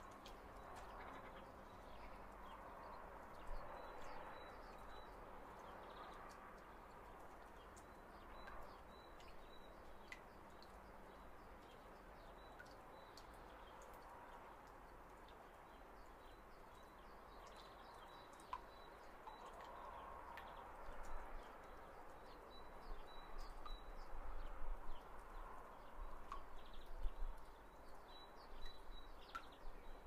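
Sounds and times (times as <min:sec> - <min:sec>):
low steady hiss: 0:00.0 - 0:30.0
small ticks: 0:00.1 - 0:01.4, 0:16.0 - 0:22.3, 0:28.6 - 0:29.6.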